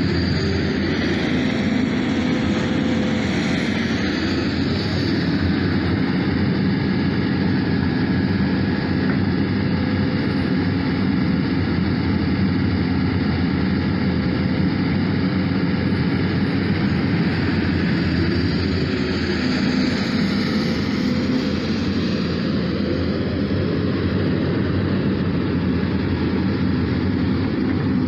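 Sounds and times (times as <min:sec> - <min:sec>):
excavator diesel engine running: 0:00.0 - 0:28.0.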